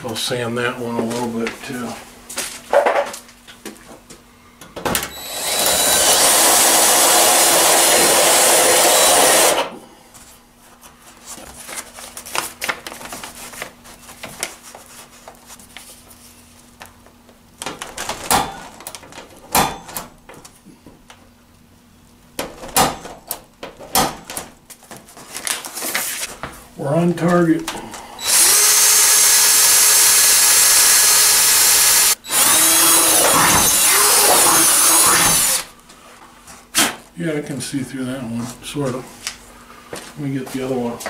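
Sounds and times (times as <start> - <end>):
handheld power tool sanding: 28.2 - 35.7.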